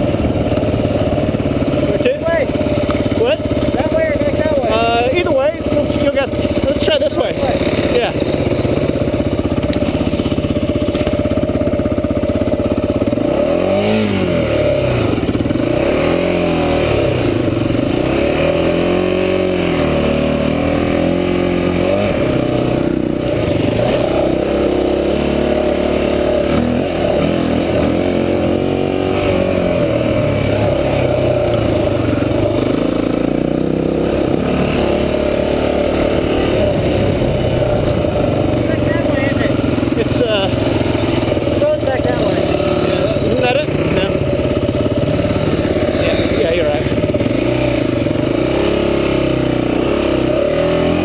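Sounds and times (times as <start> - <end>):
dirt bike engine revving: 0.0 - 51.0.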